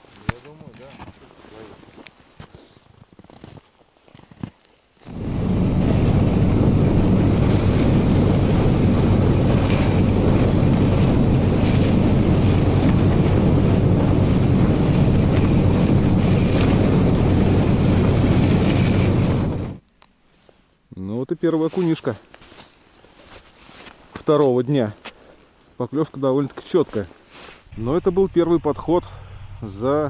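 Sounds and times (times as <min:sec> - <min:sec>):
small engine droning: 0:05.1 - 0:19.8
wind buffeting microphone: 0:05.1 - 0:19.8.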